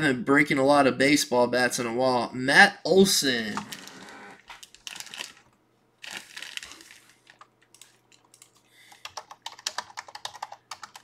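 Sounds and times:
computer keyboard typing: 7.3s - 11.0s.

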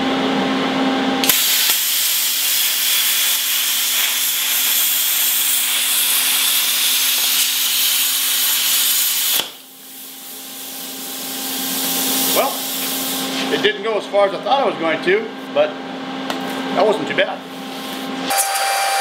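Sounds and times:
plasma cutter hissing: 1.2s - 13.6s.

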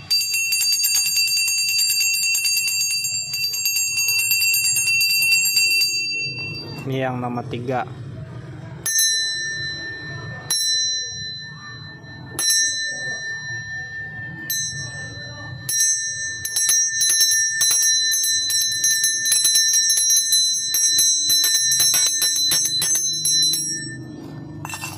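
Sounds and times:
brass bell ringing: 8.9s - 24.9s.

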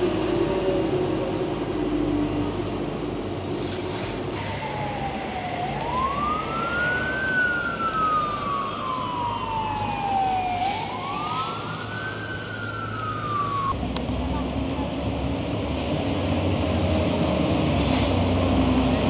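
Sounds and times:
city street traffic: 0.0s - 19.0s
emergency vehicle siren wailing: 4.3s - 13.8s.

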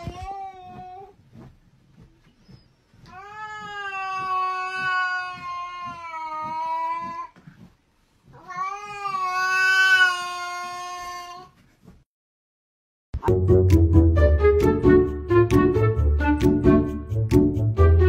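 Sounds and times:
cat yowling: 3.2s - 7.3s, 8.4s - 11.5s.

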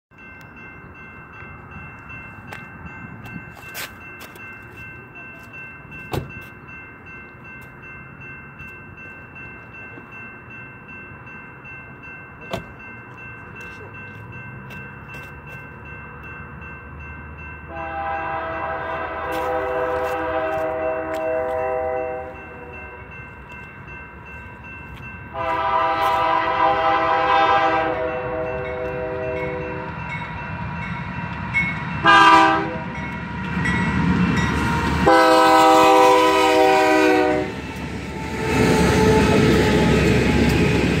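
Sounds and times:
locomotive horn chord: 17.7s - 22.8s, 25.3s - 29.9s, 32.0s - 33.0s, 35.0s - 37.6s.

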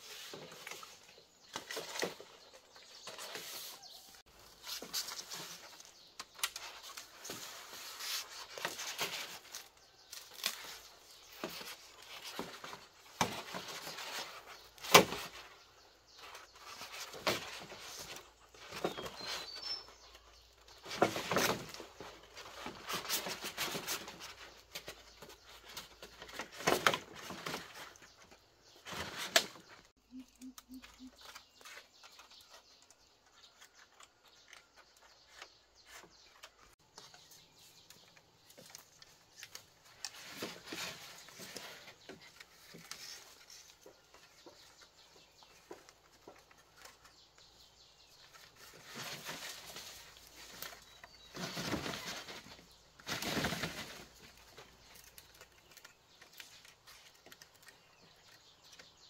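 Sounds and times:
leaves and stalks rustling: 0.0s - 59.0s.

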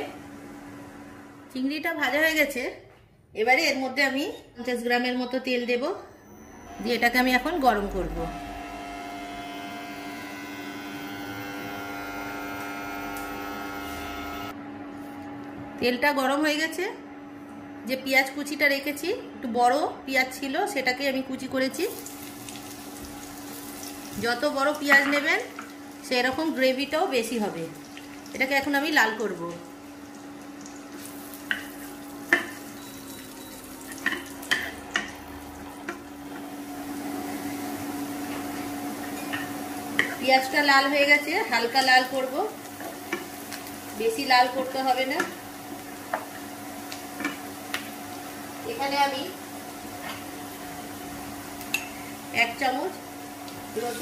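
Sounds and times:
onion sizzling in hot oil: 21.7s - 54.0s.

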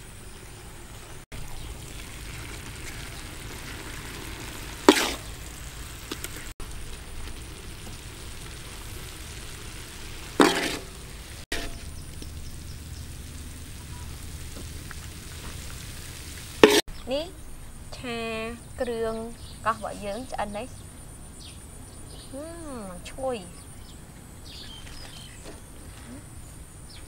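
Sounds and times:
food sizzling in a wok: 0.0s - 17.7s
metal spatula stirring: 10.4s - 11.9s.

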